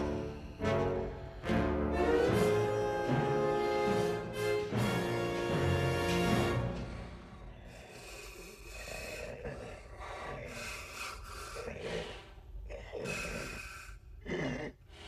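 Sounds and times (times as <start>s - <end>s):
heavy breathing in helmet: 6.7s - 14.2s.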